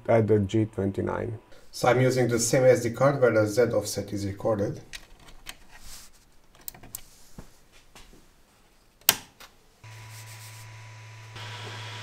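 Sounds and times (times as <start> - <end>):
printer hum with fan hiss: 9.8 - 12.0.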